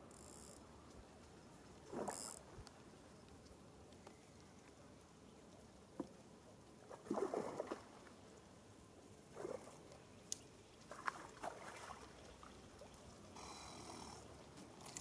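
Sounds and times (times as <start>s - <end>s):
water splashing and sloshing: 5.9s - 8.6s, 9.2s - 13.4s.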